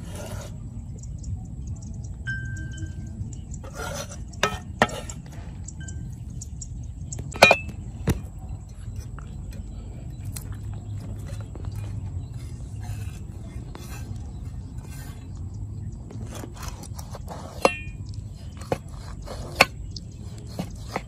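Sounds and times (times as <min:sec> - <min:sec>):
cleaver scraping ceramic bowl: 0:00.0 - 0:00.6, 0:03.6 - 0:05.4, 0:11.2 - 0:15.4, 0:16.1 - 0:21.0
steady low rumble: 0:00.0 - 0:21.0.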